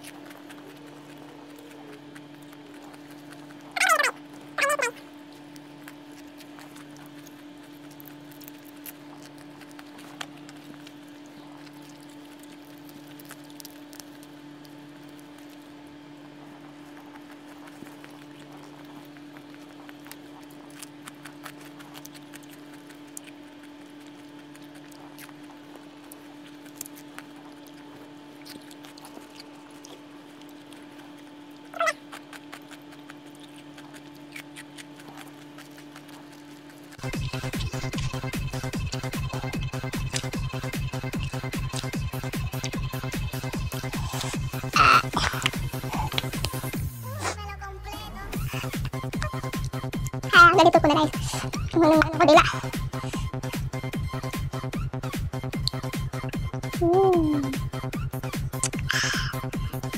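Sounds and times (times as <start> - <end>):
person crunching and chewing: 0.0 - 47.5, 48.3 - 59.9
steady electrical hum: 0.0 - 59.9.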